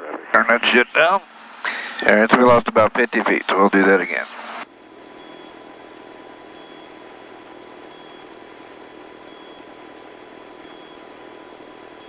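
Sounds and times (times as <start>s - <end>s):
helicopter engine and rotor noise: 5.2s - 5.6s, 6.6s - 7.0s.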